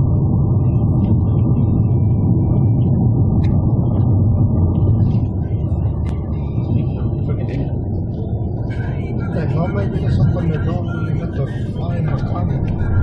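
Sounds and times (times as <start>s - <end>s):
car interior road rumble: 0.0s - 13.0s.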